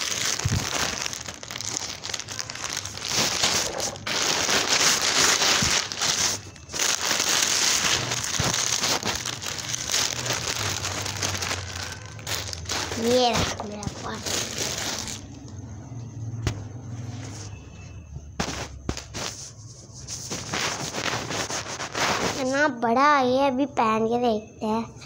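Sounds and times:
packaging tearing and rustling: 0.0 - 15.4, 20.2 - 22.5.

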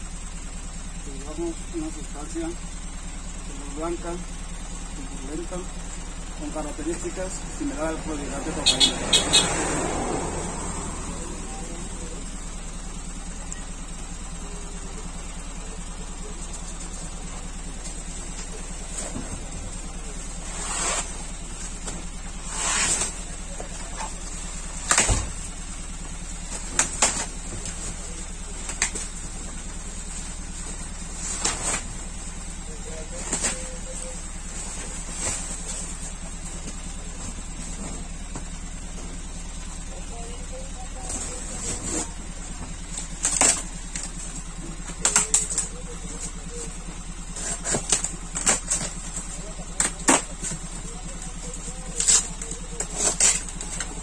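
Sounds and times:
low hum: 0.0 - 54.0
cardboard boxes clicking and scraping: 41.0 - 45.8, 47.4 - 54.0.

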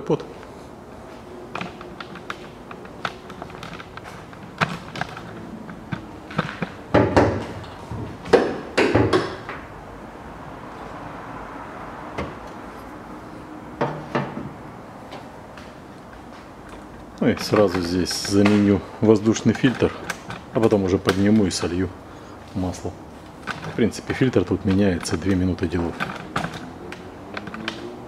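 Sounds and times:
car bonnet clicks and knocks: 1.5 - 9.7, 13.8 - 15.2, 24.5 - 28.0.

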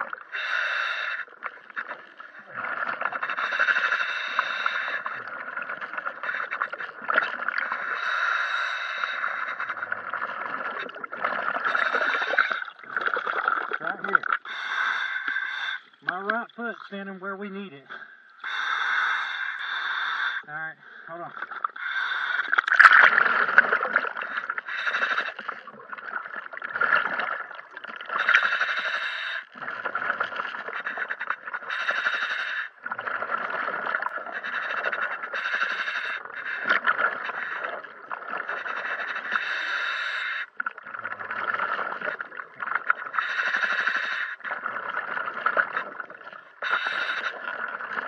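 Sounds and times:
scuba regulator breathing: 0.0 - 48.0
exhaled bubbles rushing: 5.0 - 8.1, 9.4 - 14.5, 21.4 - 28.5, 32.8 - 34.8, 40.6 - 43.3.

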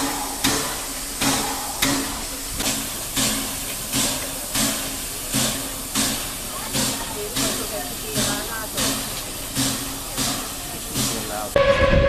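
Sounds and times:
steam compressor hissing: 0.0 - 11.7
rhythmic steam puffs: 0.0 - 11.9.

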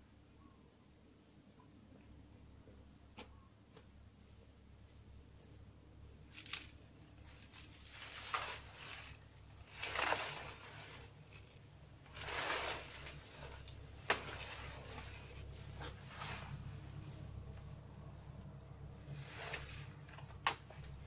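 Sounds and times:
leaves rustling: 6.2 - 21.0.

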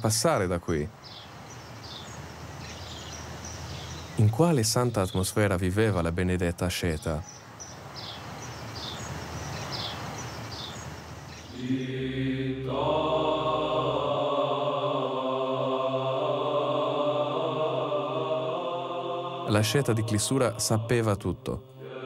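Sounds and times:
outdoor hiss: 0.0 - 22.0
voices chanting over a drone: 11.5 - 22.0.

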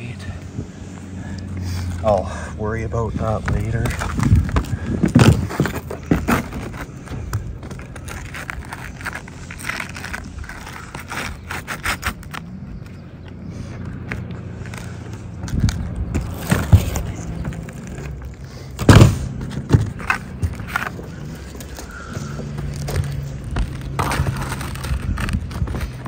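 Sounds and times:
asphalt shingles scraping: 0.0 - 26.0.

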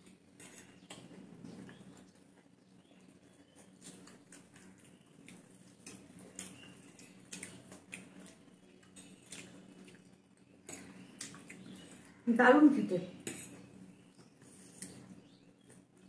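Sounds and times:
chewing noodles: 0.0 - 12.2
low steady hum: 0.0 - 16.0.

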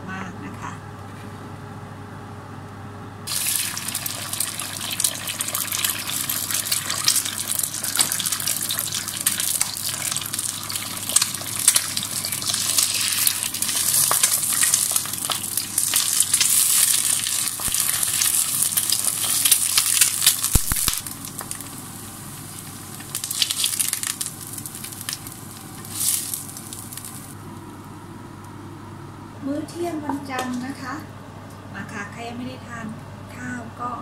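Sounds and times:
eggs sizzling in frying pan: 3.3 - 28.0.

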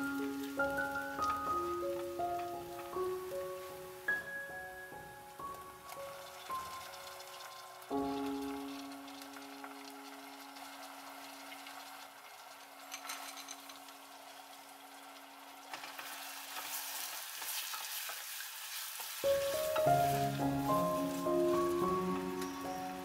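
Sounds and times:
vegetables sizzling in hot oil: 0.0 - 23.0
wooden spatula stirring: 19.0 - 23.0.

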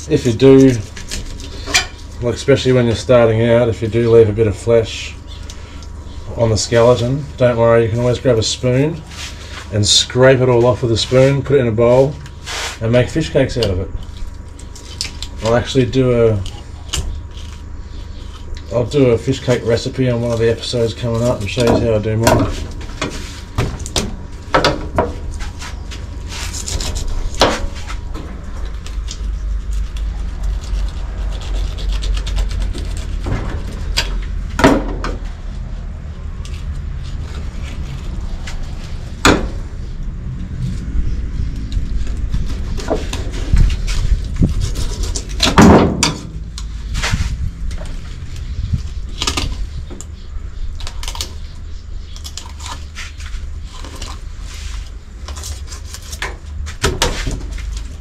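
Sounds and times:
low rumble: 21.5 - 50.9
knife scraping along fish backbone: 25.2 - 34.2, 40.8 - 45.6, 50.9 - 58.0.

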